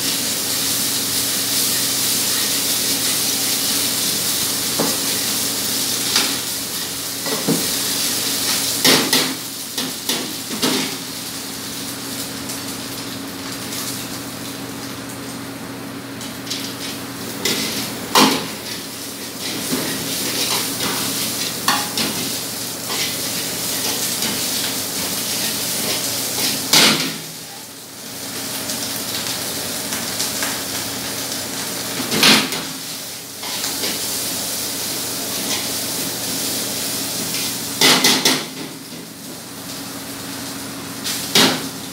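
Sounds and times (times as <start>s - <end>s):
food sizzling in wok: 0.0s - 41.9s.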